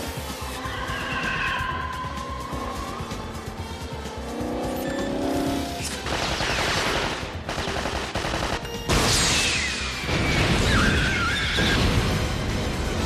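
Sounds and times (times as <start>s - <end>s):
action film music: 0.0s - 13.0s
car noise: 1.4s - 6.0s
gunfire bursts: 5.9s - 8.9s.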